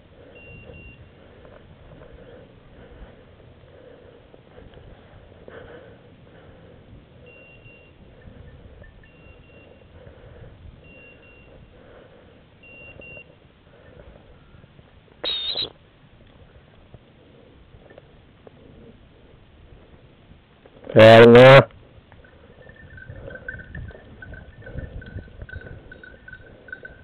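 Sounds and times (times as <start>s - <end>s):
beeper collar beeping: 0.3s - 1.2s, 7.2s - 10.0s, 10.8s - 11.7s, 12.6s - 14.0s, 15.2s - 15.7s, 22.2s - 27.0s
high-pitched whistle: 15.2s - 15.8s.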